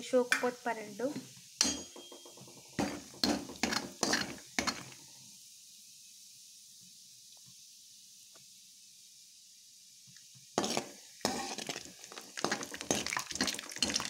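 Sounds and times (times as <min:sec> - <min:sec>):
peanuts sizzling in hot oil: 0:00.0 - 0:14.0
metal ladle scraping a pan: 0:02.6 - 0:05.0, 0:10.6 - 0:14.0.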